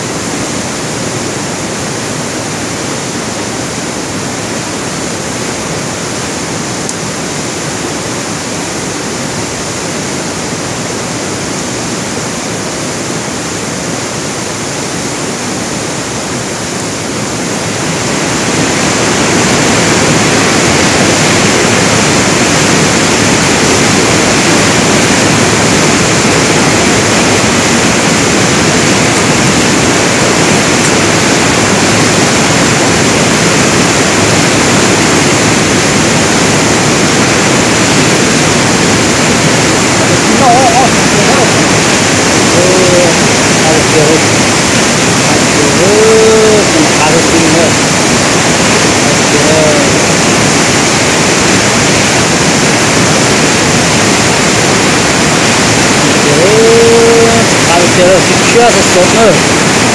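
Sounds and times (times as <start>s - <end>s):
rushing water: 0.0s - 59.9s.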